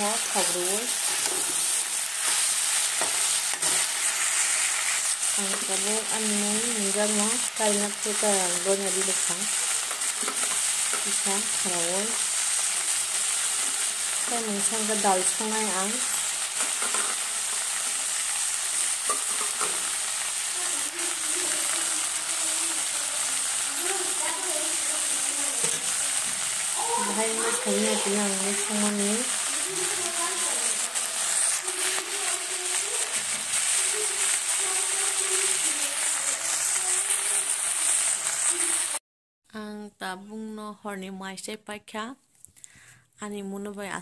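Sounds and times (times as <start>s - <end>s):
spatula scraping a pan: 0.0s - 5.8s, 8.9s - 11.3s, 16.0s - 20.6s, 23.2s - 38.9s
vegetables sizzling in a wok: 0.0s - 39.0s.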